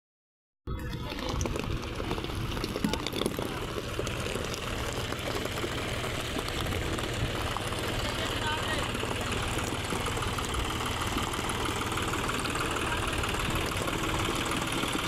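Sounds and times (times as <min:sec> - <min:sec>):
tractor diesel engine idling: 0:00.7 - 0:15.0.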